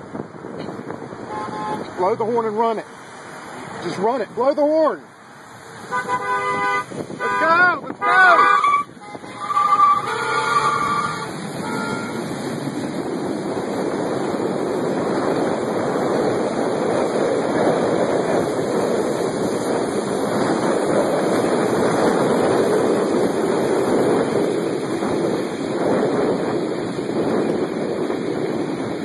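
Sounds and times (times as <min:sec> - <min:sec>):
storm wind roaring: 0:00.0 - 0:29.0
car horn: 0:01.3 - 0:01.9, 0:05.8 - 0:12.3.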